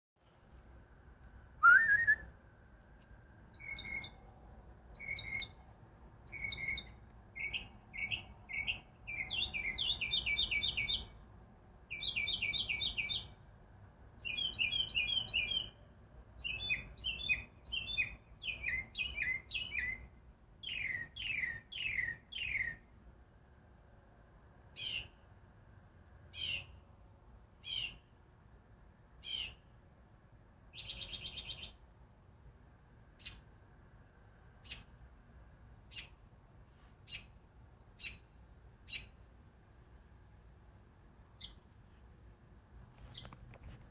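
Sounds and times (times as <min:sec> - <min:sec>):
person whistling: 0:01.6 - 0:02.3
mockingbird singing: 0:03.6 - 0:04.2, 0:05.0 - 0:05.6, 0:06.3 - 0:11.2, 0:11.9 - 0:13.3, 0:14.2 - 0:15.8, 0:16.4 - 0:22.8, 0:27.6 - 0:28.0, 0:38.0 - 0:38.2.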